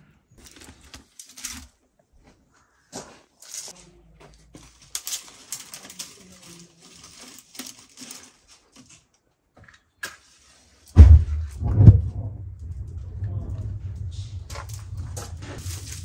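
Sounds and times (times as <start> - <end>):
dry twigs rustling and snapping: 0.4 - 1.8, 3.4 - 3.9, 4.5 - 11.0, 12.6 - 16.0.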